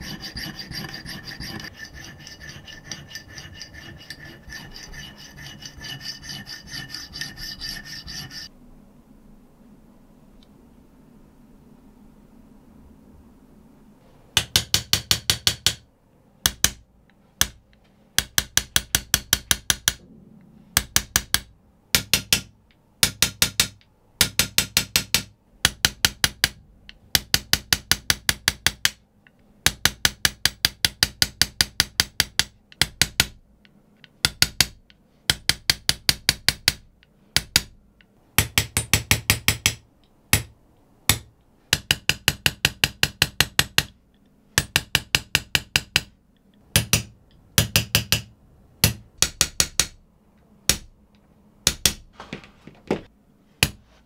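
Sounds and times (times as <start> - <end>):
hammer tapping steel chisel: 0.0 - 8.5, 14.4 - 15.8, 16.4 - 20.0, 20.8 - 40.5, 41.1 - 50.0.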